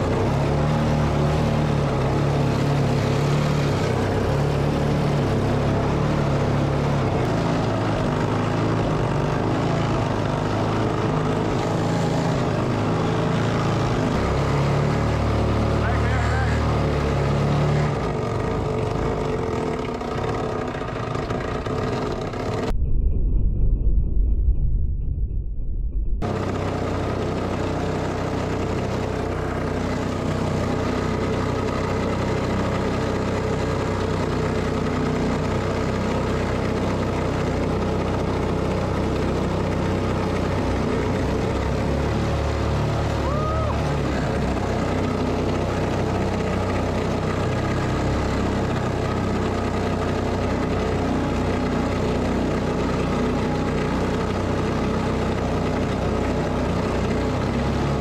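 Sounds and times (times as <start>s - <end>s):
boat engine running: 0.0s - 23.0s, 25.2s - 58.0s
water rushing along hull: 28.0s - 58.0s.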